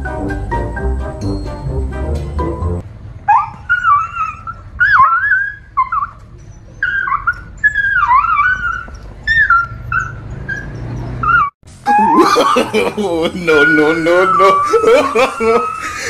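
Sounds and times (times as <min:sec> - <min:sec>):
background music: 0:00.0 - 0:02.8
dog whimpering and yelping: 0:03.3 - 0:12.7, 0:13.5 - 0:16.0.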